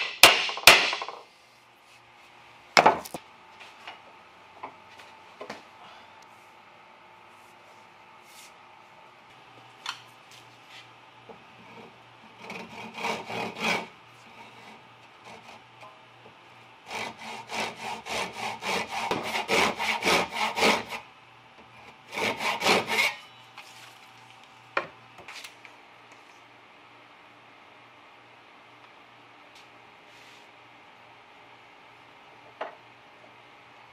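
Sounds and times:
hand saw cutting wood: 11.8 - 15.6, 16.9 - 21.0, 22.0 - 23.2.

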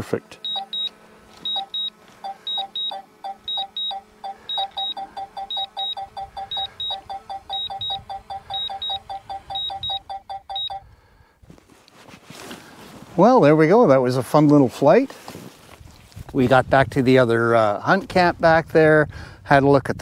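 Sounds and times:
drone electronic beeping: 0.4 - 10.8.

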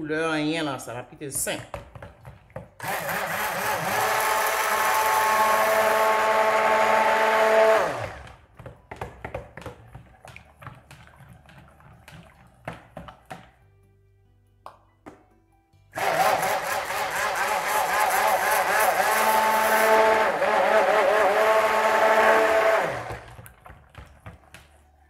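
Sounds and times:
stick blender motor whine: 2.8 - 8.4, 16.0 - 23.4.

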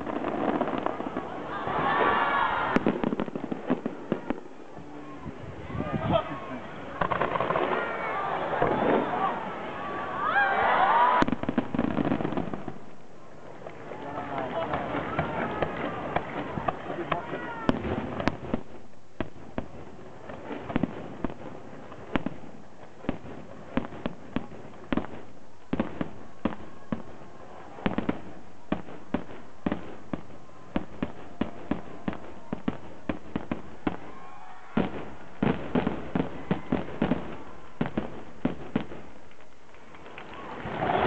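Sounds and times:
firework shells bursting: 11.2 - 41.0.

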